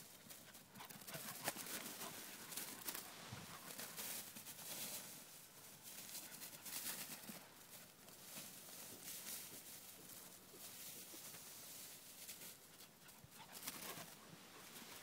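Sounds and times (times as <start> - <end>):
faint rustling: 0.0 - 15.0
footsteps through grass: 0.3 - 15.0.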